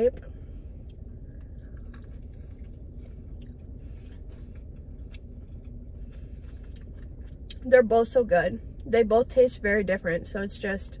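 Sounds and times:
low steady hum: 0:00.0 - 0:11.0
person chewing: 0:00.6 - 0:07.7.

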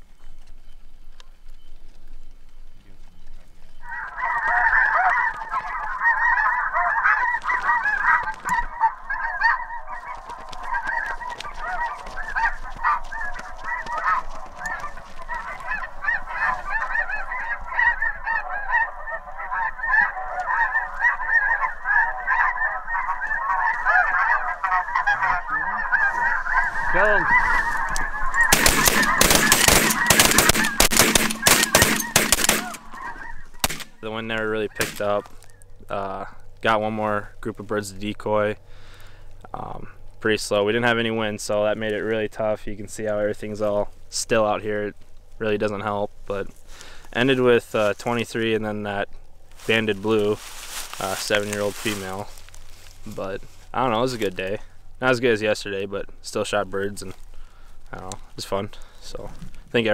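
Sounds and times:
snow geese honking: 0:03.6 - 0:37.1, 0:40.5 - 0:59.9
shotgun blasts: 0:28.5 - 0:33.0, 0:33.6 - 0:34.0, 0:34.8 - 0:35.1.

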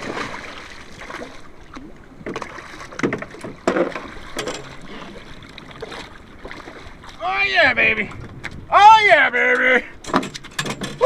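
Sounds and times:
fish thrashing in water: 0:00.0 - 0:07.2
water slapping against hull: 0:00.0 - 0:08.8.

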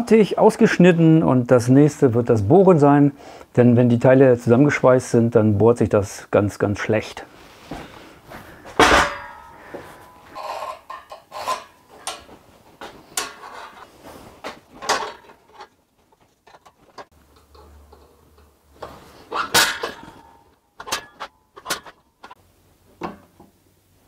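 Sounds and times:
metal knocks and clicks: 0:19.5 - 0:22.4.

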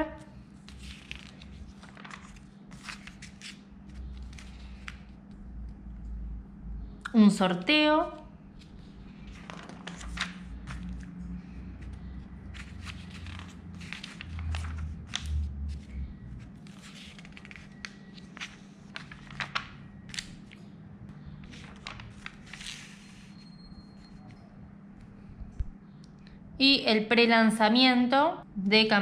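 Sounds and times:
magazine pages turning: 0:00.5 - 0:05.4, 0:08.6 - 0:24.2.

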